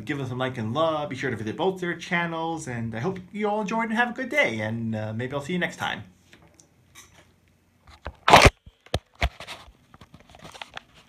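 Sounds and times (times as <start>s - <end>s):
rustling scrape of handling: 9.2s - 11.0s.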